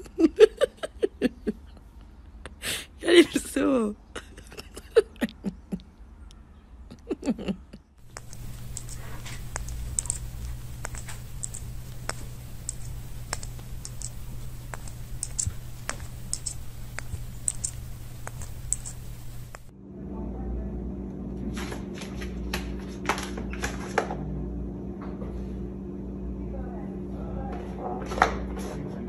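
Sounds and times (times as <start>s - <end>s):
light clicks: 8.0s - 19.7s
steady low hum: 8.0s - 21.4s.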